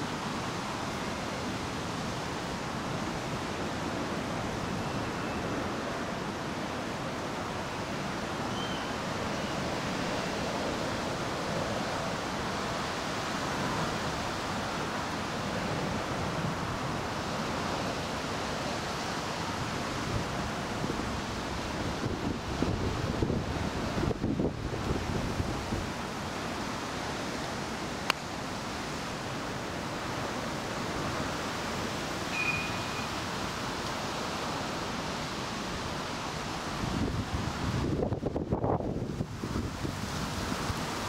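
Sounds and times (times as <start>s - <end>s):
wind rushing over microphone: 0.0s - 41.0s.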